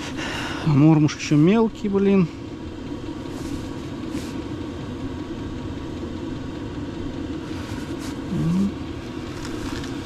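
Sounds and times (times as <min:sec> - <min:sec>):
low motor rumble: 0:00.0 - 0:10.0
rising hum: 0:02.4 - 0:10.0.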